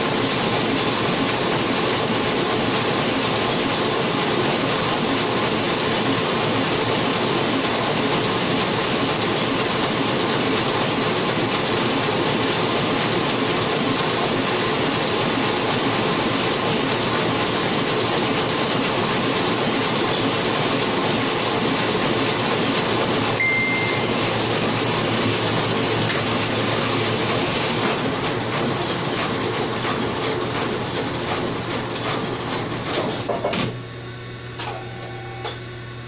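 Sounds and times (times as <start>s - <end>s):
printing press clattering: 0.0s - 33.8s
short beep: 23.4s - 24.4s.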